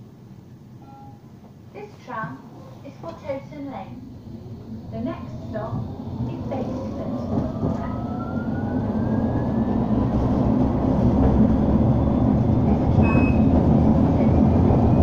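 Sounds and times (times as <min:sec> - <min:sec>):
tram motor whine: 0:03.7 - 0:15.0
wheels rumbling on rail: 0:03.8 - 0:15.0.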